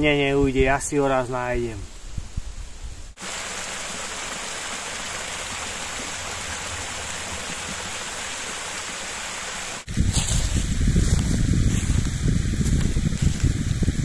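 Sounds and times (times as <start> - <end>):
brook flowing: 3.2 - 9.9.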